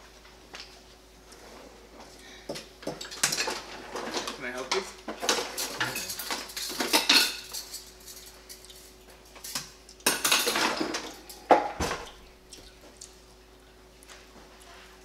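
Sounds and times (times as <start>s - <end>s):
metal cutlery clattering: 3.0s - 4.4s, 5.2s - 11.2s
dishes clinking: 5.2s - 8.3s, 9.4s - 12.0s.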